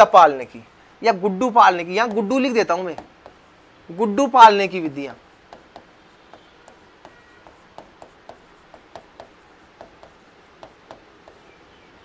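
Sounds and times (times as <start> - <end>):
marker pen writing on whiteboard: 1.4 - 11.7.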